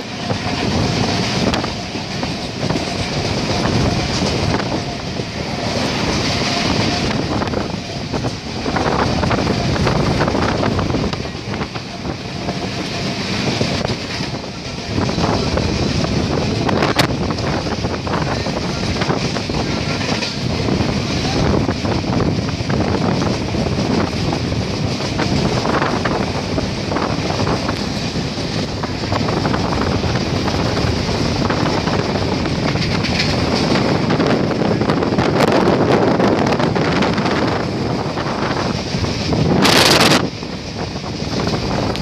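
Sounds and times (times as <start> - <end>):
train wheels rumbling on rails: 0.0 - 42.0
rattling and clicking: 23.2 - 34.6.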